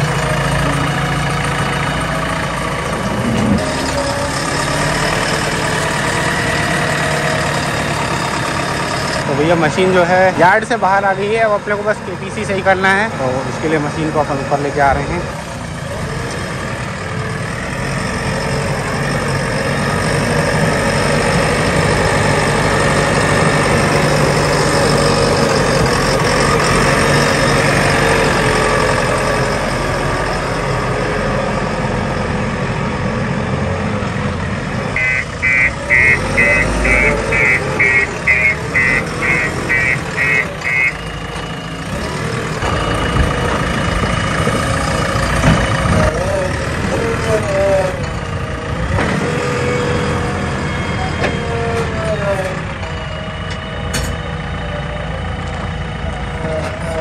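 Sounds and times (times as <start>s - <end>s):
diesel engine running: 0.0s - 57.0s
high warning beeper: 35.0s - 41.2s.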